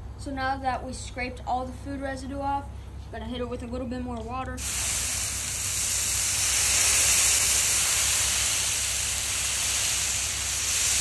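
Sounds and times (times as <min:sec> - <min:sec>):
water sizzling on hot griddle: 0:04.6 - 0:11.0.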